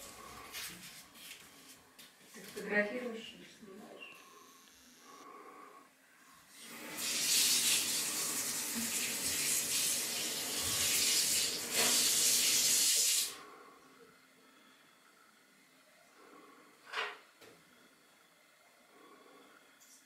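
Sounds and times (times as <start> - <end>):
water running: 6.5 - 13.4.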